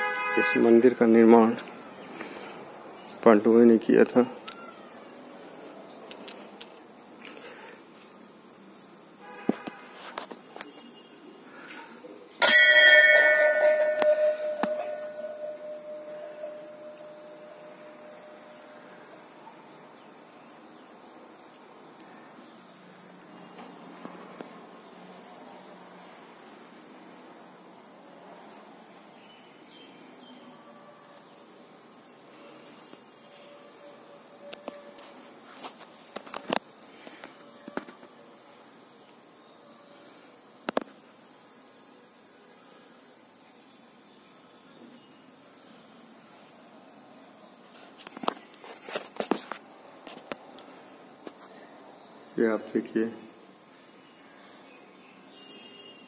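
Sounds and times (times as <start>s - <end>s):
insects chirring: 0.0s - 56.0s
temple bell ringing: 12.4s - 18.6s.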